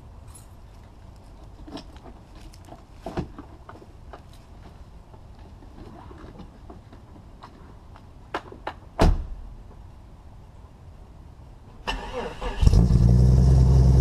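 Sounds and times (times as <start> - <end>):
knocks scuffs and rustles: 0.2 - 9.9.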